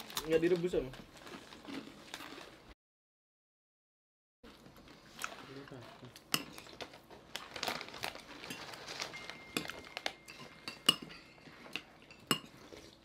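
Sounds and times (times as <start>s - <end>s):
utensils clinking on plates: 8.4s - 12.9s.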